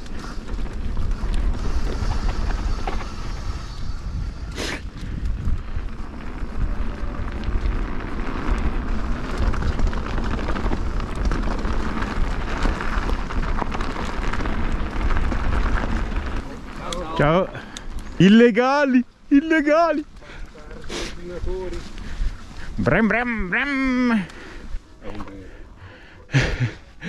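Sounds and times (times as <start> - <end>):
wind buffeting microphone: 0.0 - 18.3
bike rattling and clicking: 0.0 - 25.4
tyre rumble on dirt: 6.0 - 17.2.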